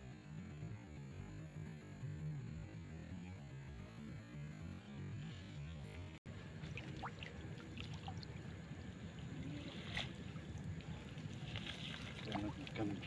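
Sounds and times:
water trickling and dripping: 6.5s - 13.0s
wet net pulled from water: 9.5s - 13.0s.

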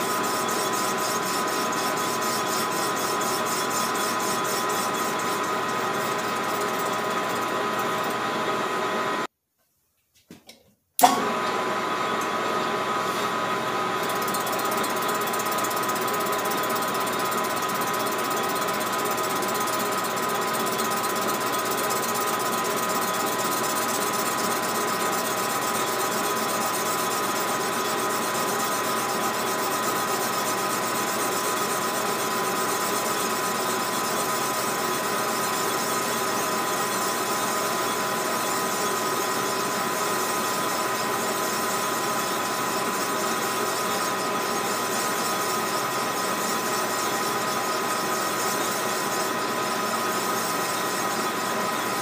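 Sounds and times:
metal lathe running: 0.0s - 9.2s, 13.9s - 52.0s.

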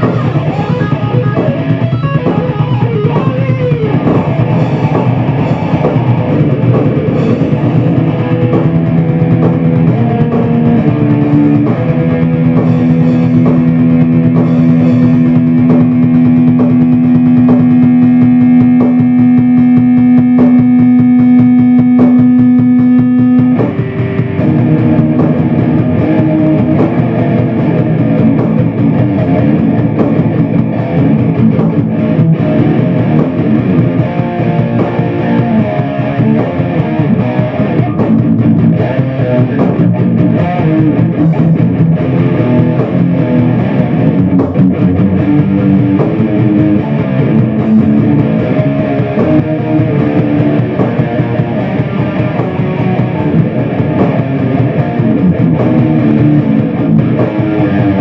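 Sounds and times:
electric guitar heavy metal riff: 0.0s - 58.0s.

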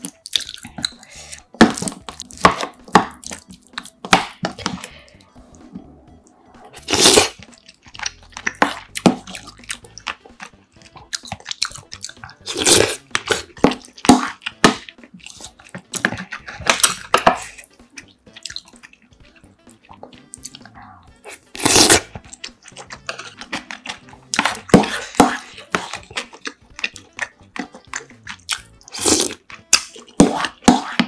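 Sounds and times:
wet chewing: 0.0s - 31.0s
spoon scraping ceramic bowl: 21.3s - 26.4s.

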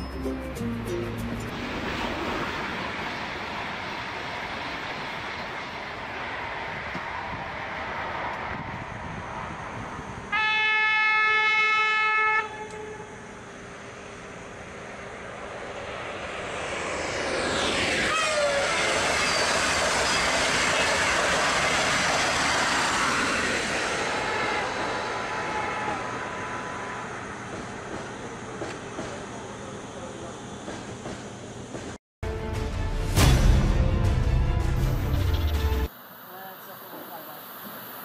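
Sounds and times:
high-speed train passing: 0.0s - 32.0s
rush of wheels and air: 1.2s - 10.3s, 13.5s - 27.9s
train horn: 10.3s - 13.4s, 18.1s - 18.9s.

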